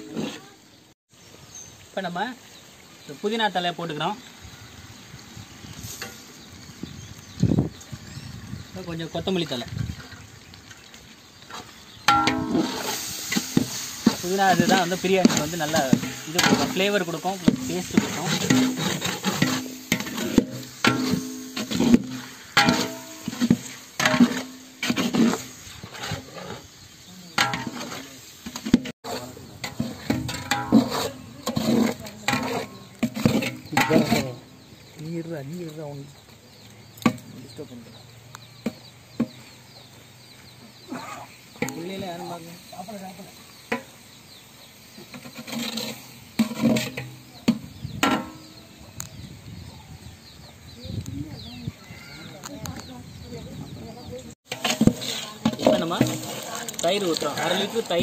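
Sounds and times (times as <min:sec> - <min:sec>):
metal ladle scraping pot: 0:11.5 - 0:26.8, 0:27.4 - 0:34.6, 0:45.0 - 0:48.5, 0:54.4 - 0:58.0.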